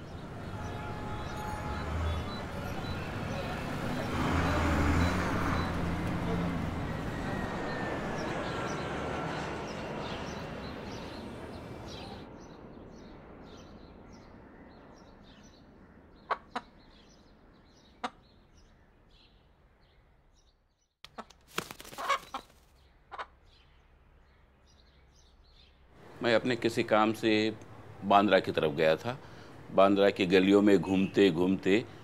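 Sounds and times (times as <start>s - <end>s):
bus passing: 0.0s - 13.6s, 25.9s - 32.0s
street traffic: 0.0s - 14.1s, 21.1s - 32.0s.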